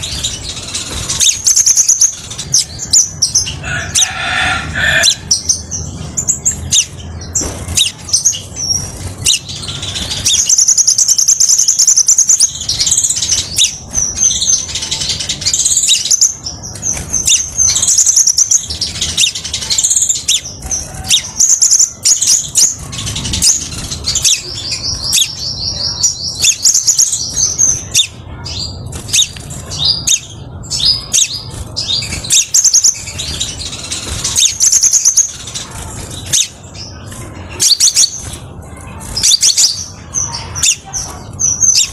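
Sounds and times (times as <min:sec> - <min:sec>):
bird chirping: 0:00.0 - 0:41.9
bird rapid trills: 0:00.0 - 0:41.9.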